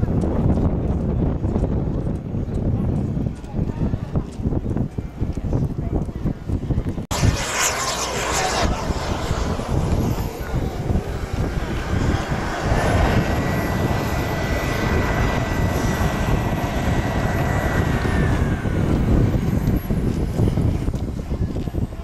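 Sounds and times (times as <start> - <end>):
model jet engine whine: 7.1 - 22.0.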